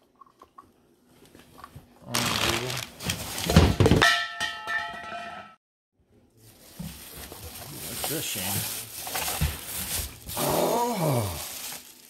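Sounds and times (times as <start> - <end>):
rustling in cardboard box: 6.4 - 10.5.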